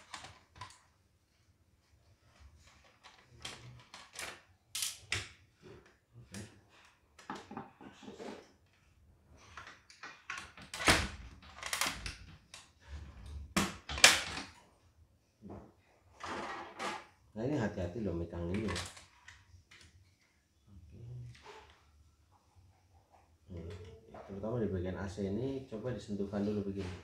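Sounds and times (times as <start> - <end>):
plastic parts clattering: 0.0 - 0.9, 2.6 - 6.5, 9.5 - 12.8, 13.5 - 14.6, 18.4 - 19.9.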